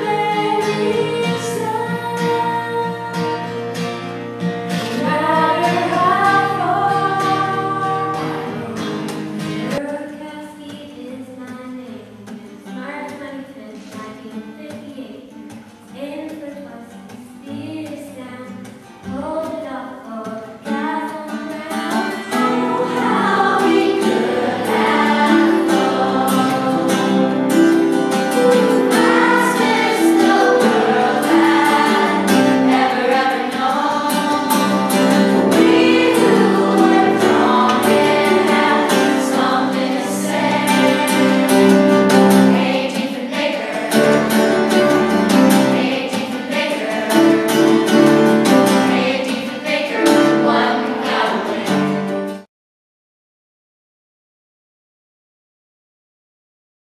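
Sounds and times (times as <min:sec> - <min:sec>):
group singing: 0:00.0 - 0:03.6, 0:04.9 - 0:09.0, 0:21.7 - 0:52.3
acoustic guitar: 0:00.0 - 0:52.5.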